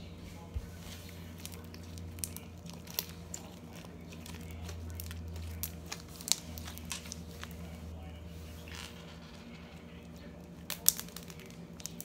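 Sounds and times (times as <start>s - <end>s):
low background hum: 0.0s - 12.0s
slime squeezing crackles: 1.0s - 7.9s, 8.5s - 12.0s.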